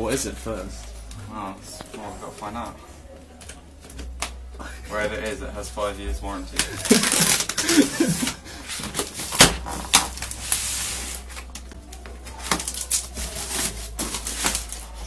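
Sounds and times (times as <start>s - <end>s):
tape and cardboard rustling: 6.5s - 15.0s.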